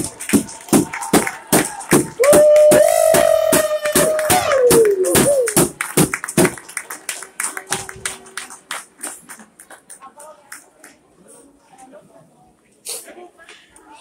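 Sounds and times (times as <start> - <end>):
crowd clapping: 0.0 - 11.0.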